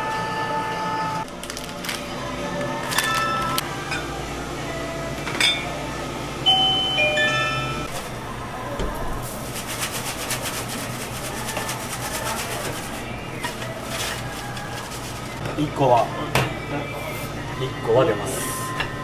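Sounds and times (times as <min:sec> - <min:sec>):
chime-like tones: 0:06.4 - 0:07.9.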